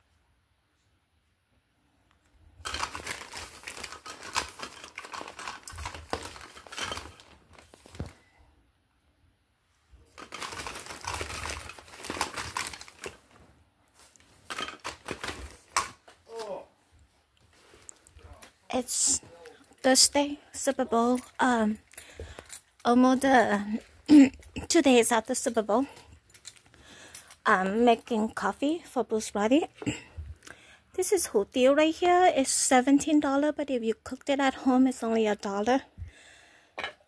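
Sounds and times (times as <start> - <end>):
plastic bags crinkling: 2.6 - 8.4, 10.0 - 16.1, 17.5 - 28.5.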